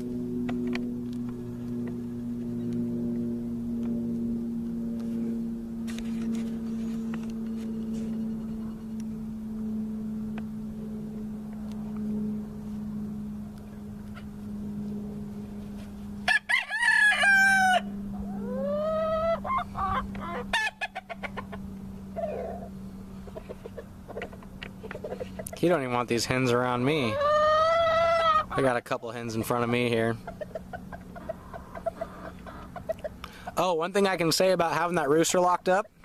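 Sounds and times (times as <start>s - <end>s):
steady low hum: 0.0s - 36.0s
rooster crowing: 16.2s - 21.1s, 27.1s - 28.5s.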